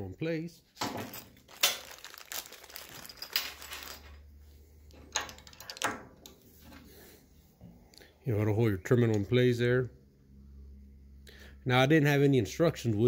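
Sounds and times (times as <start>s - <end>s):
plastic bag crinkling: 1.0s - 4.2s.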